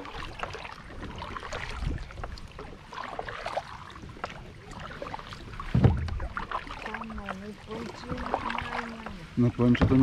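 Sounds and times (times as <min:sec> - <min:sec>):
paddle splashing in water: 0:00.0 - 0:10.0.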